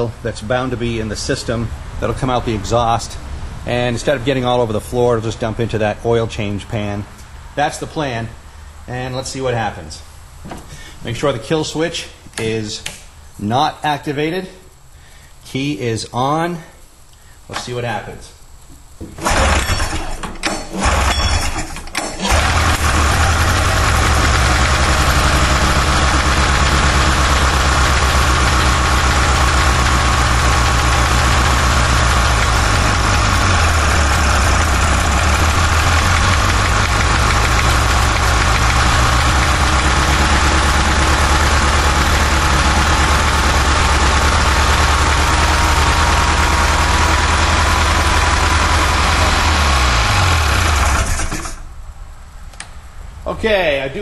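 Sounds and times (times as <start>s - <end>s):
two-stroke engine sputtering and idling: 20.8s - 21.6s, 22.2s - 51.6s.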